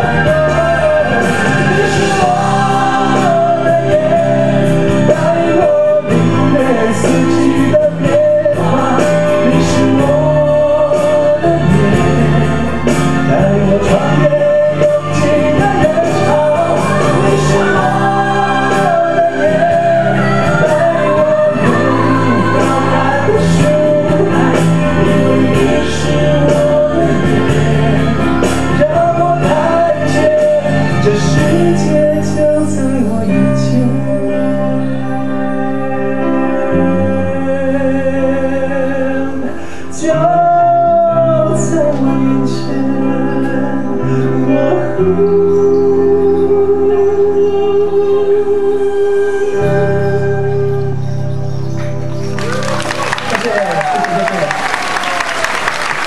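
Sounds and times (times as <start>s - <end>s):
music with beat: 0.0s - 37.2s
man singing into microphone: 0.0s - 51.2s.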